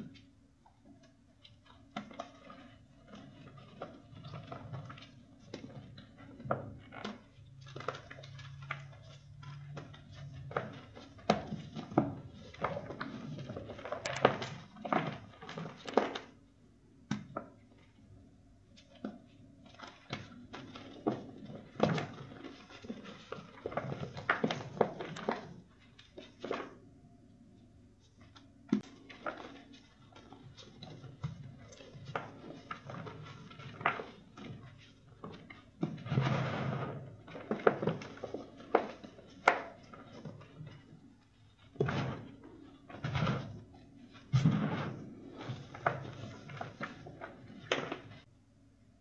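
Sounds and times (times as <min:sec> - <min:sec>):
powdery crumbling: 0:01.0 - 0:16.4, 0:18.8 - 0:26.9, 0:28.1 - 0:48.3.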